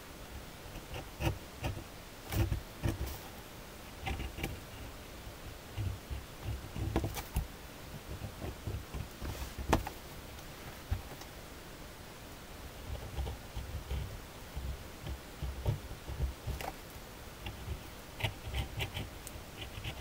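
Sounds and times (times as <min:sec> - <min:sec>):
pen scratching on paper: 0:00.7 - 0:03.2, 0:17.4 - 0:20.0.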